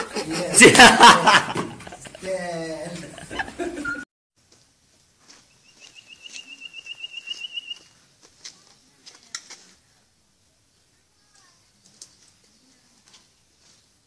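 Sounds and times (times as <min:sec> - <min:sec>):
bird trilling: 0:05.5 - 0:07.9.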